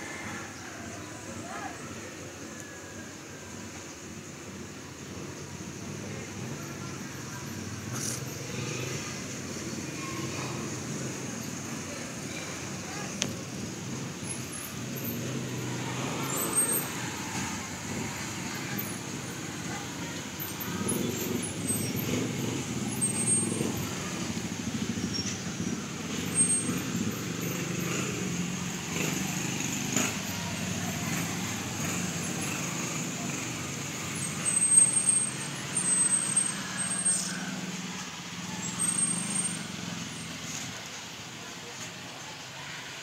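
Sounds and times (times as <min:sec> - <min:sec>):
low rumble of road traffic: 0:00.0 - 0:43.0.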